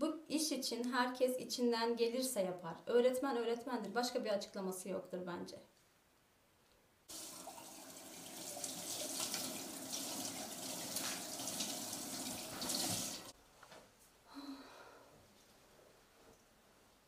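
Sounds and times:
hands washing in water: 7.1s - 13.3s
tap running into plastic basin: 8.3s - 13.2s.

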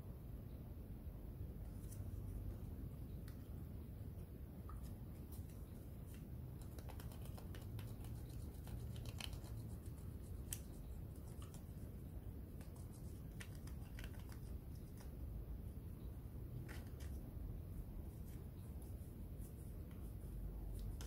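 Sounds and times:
low steady hum: 0.0s - 21.0s
cotton swab scratchy rubbing: 5.3s - 15.2s, 18.0s - 21.0s.

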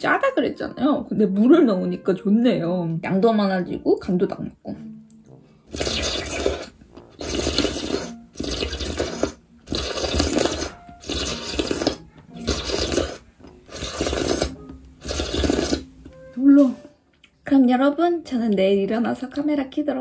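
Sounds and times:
person slurping porridge: 5.7s - 16.0s.

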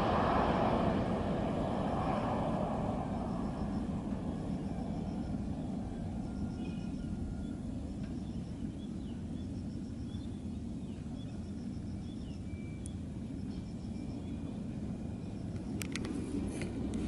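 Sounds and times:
distant jet airliner rumble: 0.0s - 17.0s.

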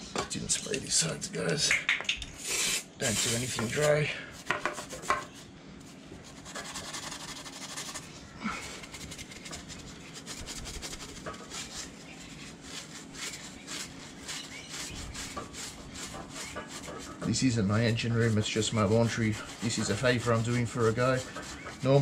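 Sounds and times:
scourer pad scrubbing metal: 3.0s - 5.3s, 6.2s - 8.1s, 8.8s - 22.0s.

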